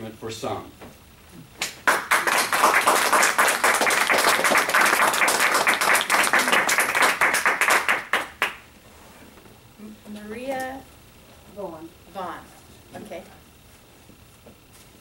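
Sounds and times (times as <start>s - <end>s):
audience applauding: 1.6s - 8.6s.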